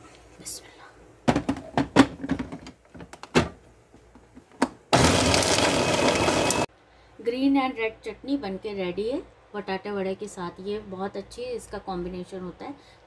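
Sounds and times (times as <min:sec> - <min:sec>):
electric food chopper grinding ice: 0:04.9 - 0:06.7.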